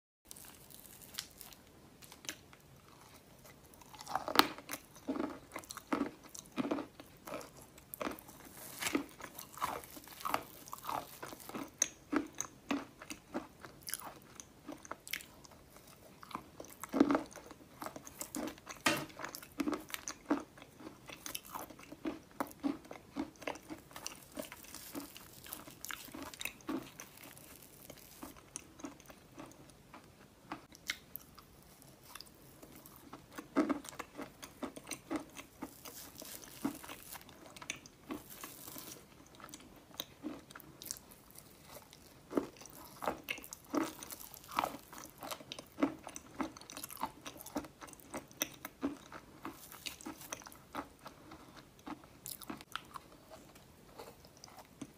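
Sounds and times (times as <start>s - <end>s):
chalk crunching between teeth: 33.5s - 39.1s.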